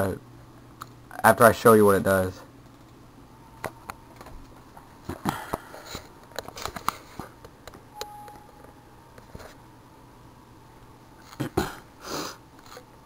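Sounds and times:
short computer alert beep: 8.0s - 8.7s.

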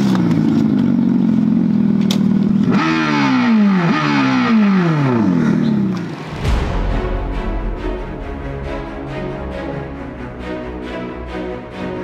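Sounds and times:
simulated motorcycle engine revving: 0.0s - 6.3s.

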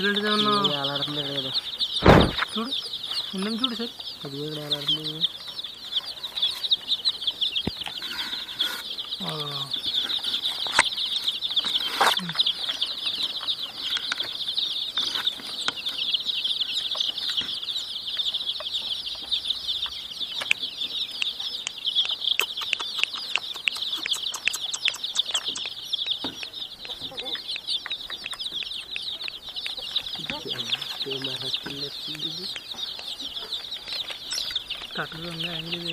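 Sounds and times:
baby chicks peeping: 0.0s - 35.9s.

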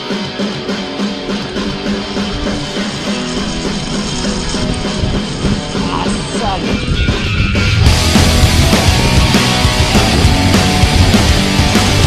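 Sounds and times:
guitar-led rock music: 0.0s - 12.0s.

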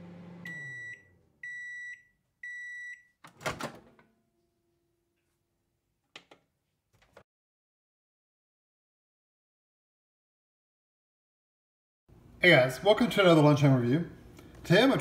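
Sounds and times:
microwave oven hum: 0.0s - 2.9s.

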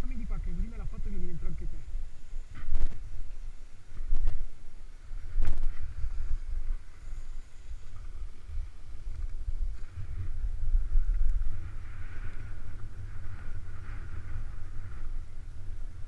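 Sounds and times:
wind buffeting microphone: 0.0s - 16.0s
skis sliding on snow: 5.0s - 16.0s.

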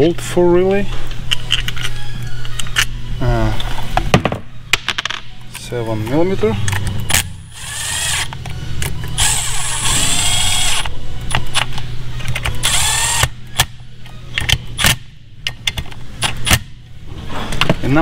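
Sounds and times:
metal parts clicking: 1.3s - 2.9s
cordless drill motor whine: 7.5s - 8.3s, 9.2s - 10.9s, 12.6s - 13.2s.

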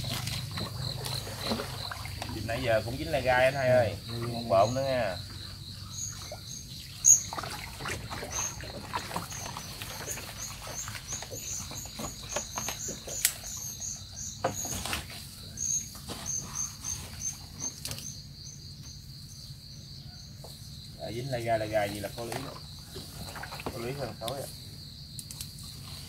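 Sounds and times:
insects chirping: 0.0s - 26.0s
handling knocks and rustles: 7.8s - 13.8s, 14.4s - 18.1s.

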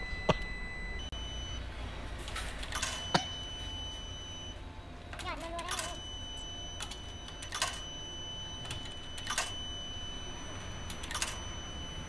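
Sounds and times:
coins clinking into slot: 2.2s - 3.3s, 5.1s - 7.9s, 8.6s - 9.6s, 10.9s - 11.6s.

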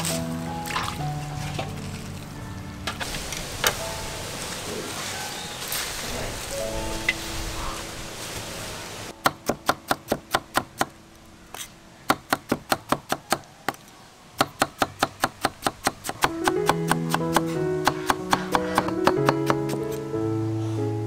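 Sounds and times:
acoustic guitar music: 0.0s - 5.1s, 16.3s - 20.4s
cleaver chopping on wooden block: 14.4s - 19.8s.

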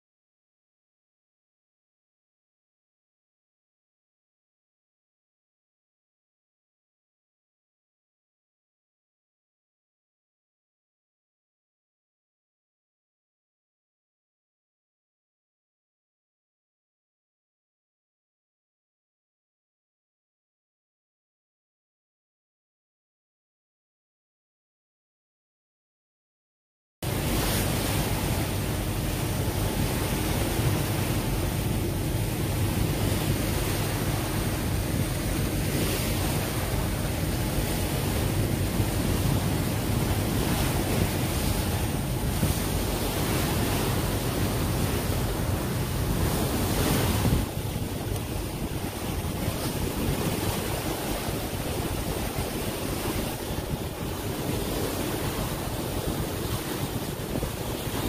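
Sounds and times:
water rushing past boat: 27.0s - 58.0s
wind on microphone: 27.0s - 58.0s.

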